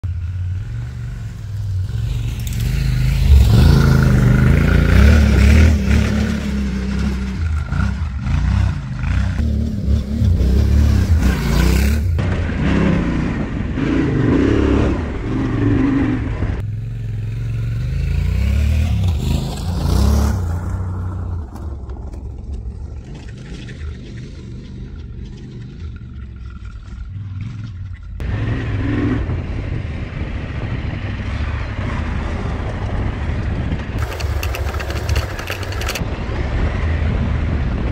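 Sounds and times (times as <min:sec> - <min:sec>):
off-road vehicle engine revving: 0:02.0 - 0:20.9, 0:34.0 - 0:36.0.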